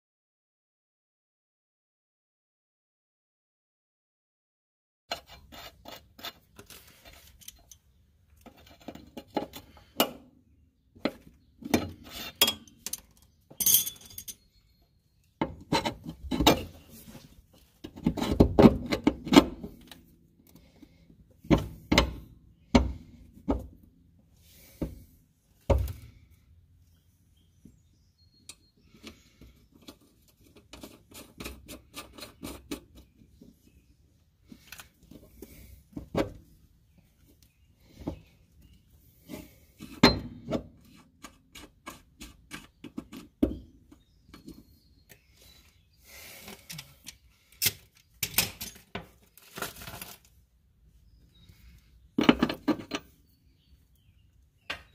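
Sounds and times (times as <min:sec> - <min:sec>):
tools and metal parts clinking: 0:06.2 - 0:09.7, 0:11.7 - 0:14.8, 0:46.6 - 0:49.9.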